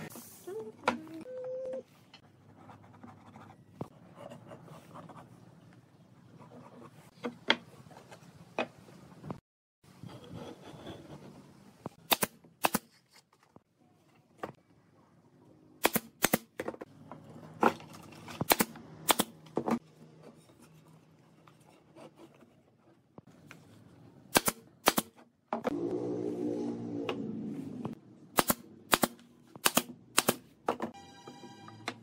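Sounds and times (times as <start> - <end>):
nail gun firing: 12.0 - 12.8, 15.8 - 16.5, 24.3 - 25.1, 28.4 - 30.5.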